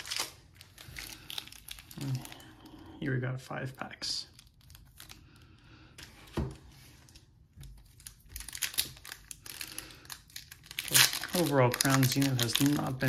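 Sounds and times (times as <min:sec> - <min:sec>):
foil wrappers crinkling: 0:00.0 - 0:02.5, 0:07.1 - 0:13.0.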